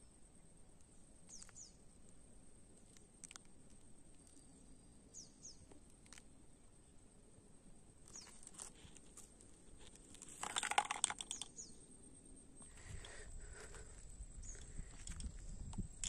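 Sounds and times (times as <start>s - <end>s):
small clicks: 0.8s - 2.2s, 2.8s - 4.5s, 5.7s - 6.3s, 8.1s - 11.7s, 12.6s - 15.9s
bird chirps: 1.3s - 1.8s, 4.2s - 5.7s, 8.1s - 8.4s, 11.2s - 11.9s.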